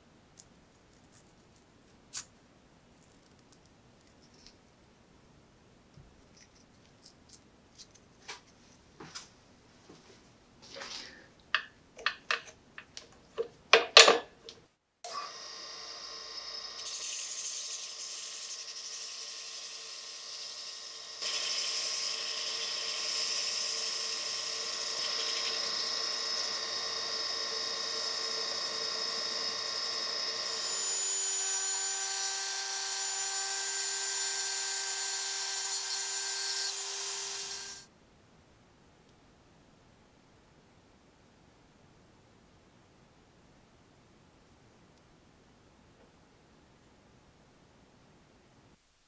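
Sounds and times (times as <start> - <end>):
drill press motor whine: 15.1 - 37.8.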